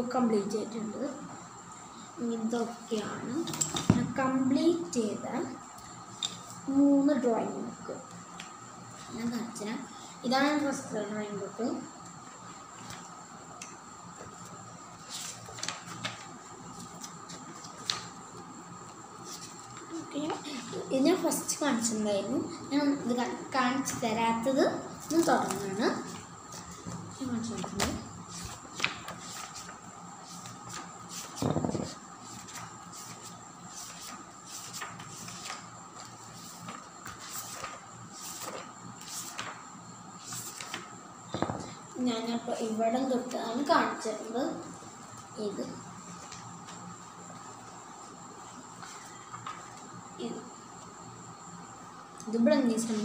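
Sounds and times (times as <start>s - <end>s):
faint background hum: 0.0s - 53.0s
paper pages rustling: 15.0s - 18.2s, 25.1s - 39.6s, 40.2s - 40.9s, 48.8s - 49.8s
paper crackling: 15.1s - 18.1s, 28.4s - 39.6s, 40.2s - 40.9s
knock on table: 31.4s - 31.9s, 41.4s - 41.7s.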